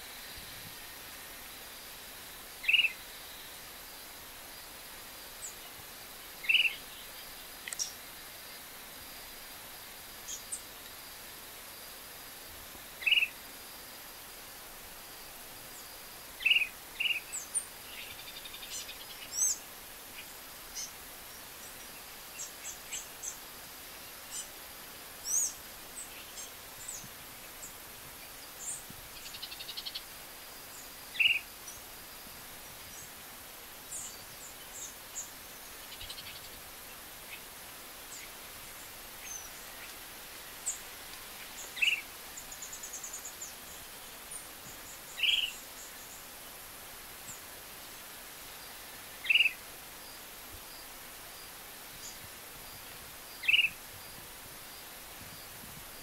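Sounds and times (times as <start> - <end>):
faint high-pitched chirps: 2.6 - 3.6.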